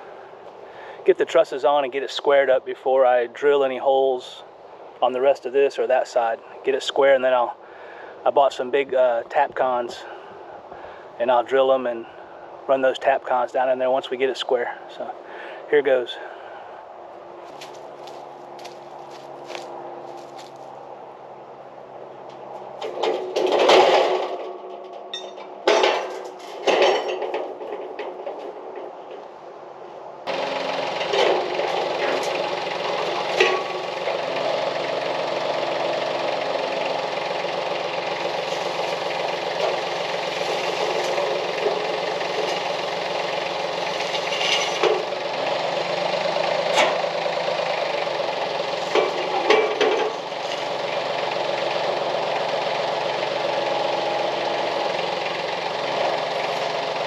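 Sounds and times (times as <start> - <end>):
tractor engine running: 0.0 - 57.0
sharp metal clanks: 22.8 - 28.0, 31.0 - 34.1, 38.2 - 45.2, 46.7 - 47.0, 48.8 - 50.8.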